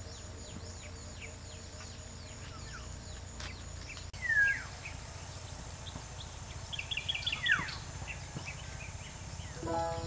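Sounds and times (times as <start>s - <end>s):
high insect drone: 0.0s - 10.0s
whistled bird call: 4.2s - 4.7s, 6.8s - 10.0s.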